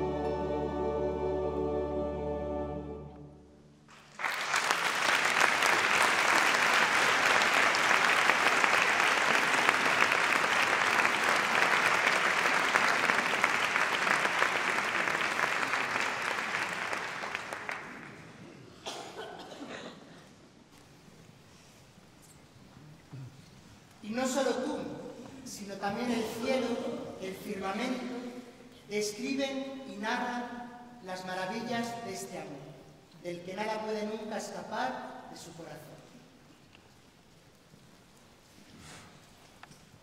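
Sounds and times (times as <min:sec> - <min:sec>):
audience applauding: 0:03.9 - 0:18.4.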